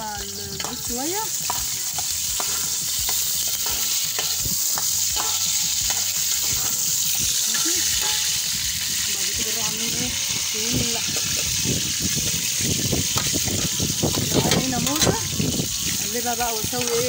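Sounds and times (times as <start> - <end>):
fat sizzling in hot oil: 0.0 - 17.0
metal spoon scraping pot: 0.5 - 8.7.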